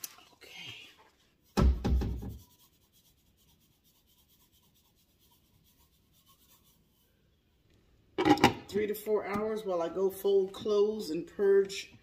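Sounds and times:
loud knock with rattle: 1.6 - 2.3.

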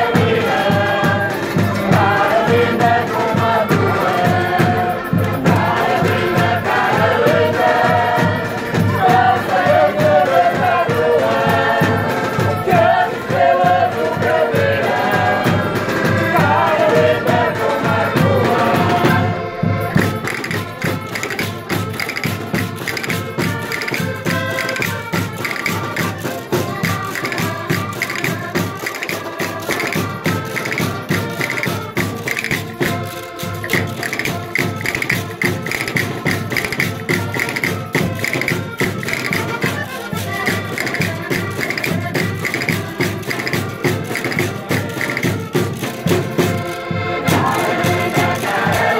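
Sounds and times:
folk group singing in chorus: 0.0 - 48.9
tambourine: 19.8 - 48.9.

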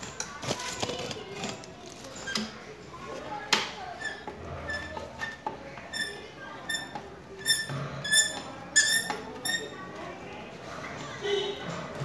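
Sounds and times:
metal on metal squeaks: 4.0 - 9.8.

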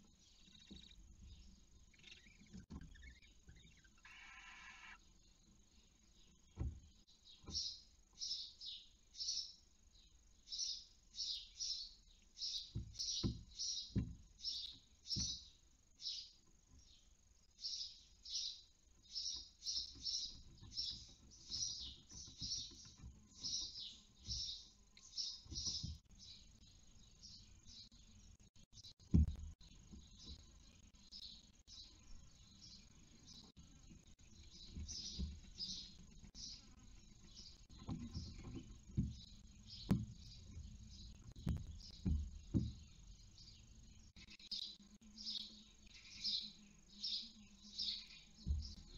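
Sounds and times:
owl chicks hissing: 3.9 - 5.0
dull thumps: 6.5 - 7.7, 12.7 - 15.5, 29.0 - 30.5, 34.5 - 43.5, 48.4 - 48.9.

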